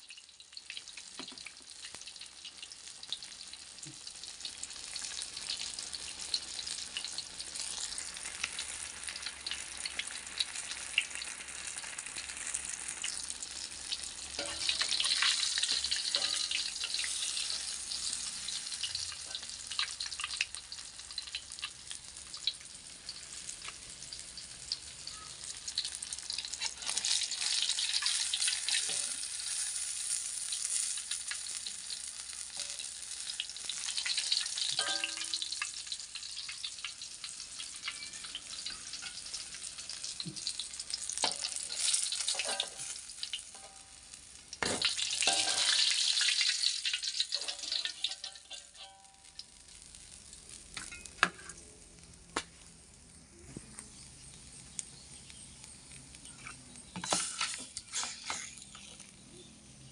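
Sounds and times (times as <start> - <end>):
fish sizzling in hot oil: 0.0 - 59.9
spatula moving food in wok: 14.3 - 20.0, 34.6 - 35.5, 41.2 - 43.9, 44.6 - 49.1, 50.5 - 51.6, 53.9 - 59.2.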